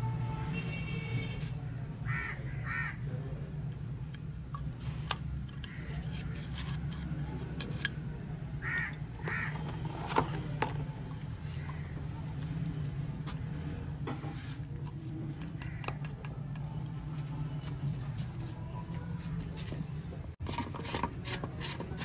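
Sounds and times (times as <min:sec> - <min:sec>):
crow cawing: 0:02.1 - 0:03.0, 0:08.6 - 0:09.6, 0:15.6 - 0:16.0.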